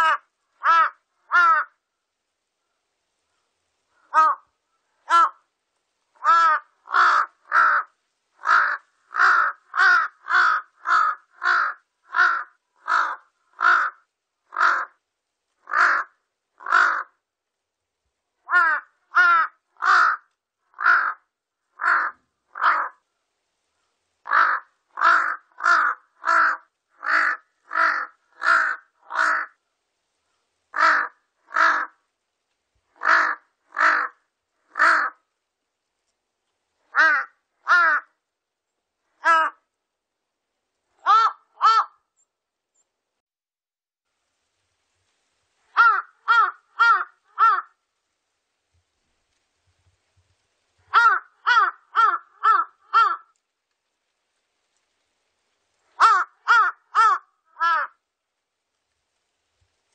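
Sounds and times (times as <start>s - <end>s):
crow cawing: 0.0s - 1.8s, 4.0s - 5.5s, 6.2s - 15.0s, 15.6s - 17.2s, 18.4s - 23.0s, 24.2s - 29.6s, 30.7s - 32.0s, 33.0s - 35.3s, 36.9s - 38.2s, 39.2s - 39.7s, 41.0s - 42.1s, 45.7s - 47.8s, 50.9s - 53.4s, 56.0s - 58.0s.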